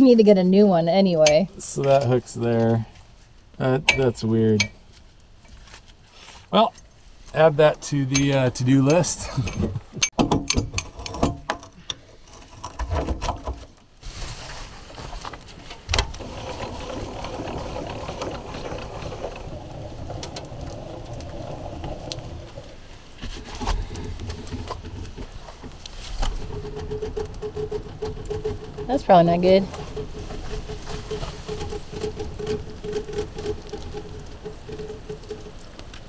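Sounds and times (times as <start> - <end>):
trailer wheels rolling over dirt: 0.0 - 10.0, 10.6 - 36.0
rock knocking and scraping: 6.6 - 13.8, 14.8 - 36.0.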